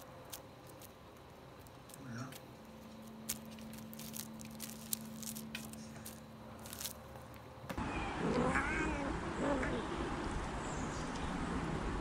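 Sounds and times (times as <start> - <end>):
plastic bag crinkling: 0.0 - 7.4
steady low hum: 0.0 - 12.0
kitten mewing: 7.9 - 9.8.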